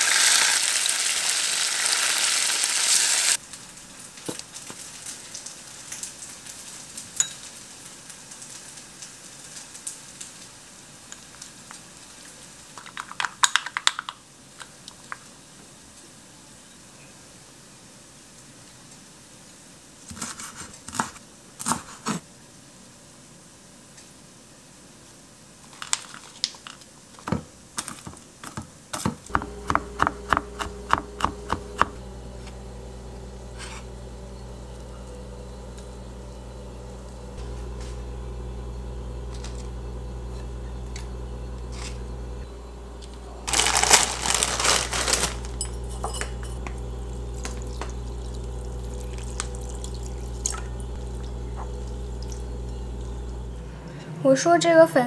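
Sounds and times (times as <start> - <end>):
knife chopping on wooden board: 28.5 - 32.0
steady low hum: 29.2 - 54.8
water pouring into a bowl: 47.3 - 52.4.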